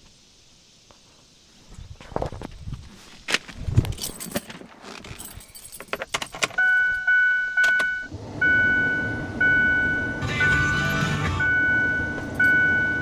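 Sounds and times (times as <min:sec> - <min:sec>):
keys jangling in ignition: 0:03.8 - 0:07.9
dashboard warning chime: 0:06.6 - 0:13.0.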